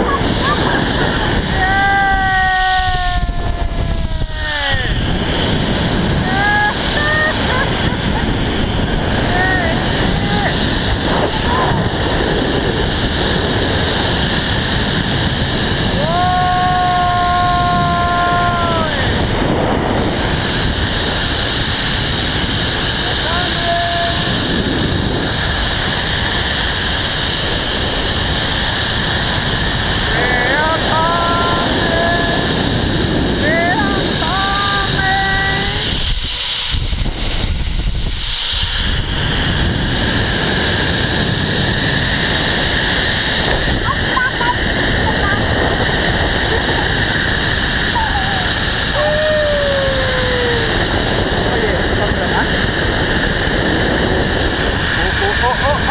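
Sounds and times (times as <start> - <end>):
person shouting: 0.0 - 5.1, 6.2 - 7.9, 9.2 - 10.7, 15.9 - 19.2, 30.1 - 32.6, 33.4 - 35.8, 47.9 - 50.8
pulleys whirring on cable: 0.0 - 55.9
wind rushing: 0.0 - 55.9.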